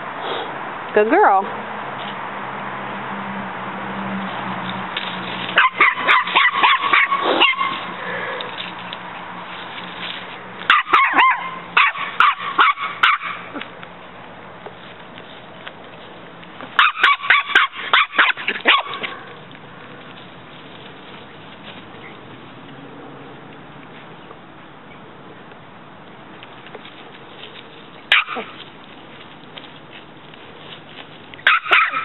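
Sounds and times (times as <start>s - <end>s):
puppy yapping: 5.6s - 7.9s, 10.7s - 13.7s, 16.8s - 19.3s, 28.1s - 28.6s, 31.4s - 32.0s.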